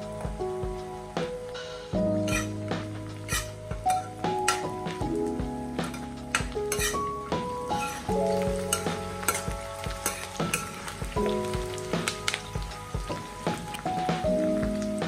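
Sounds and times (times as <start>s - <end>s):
background music: 0.0s - 15.0s
onions sizzling in hot oil: 0.0s - 15.0s
ladle scraping a pan: 2.2s - 4.8s, 5.8s - 11.0s.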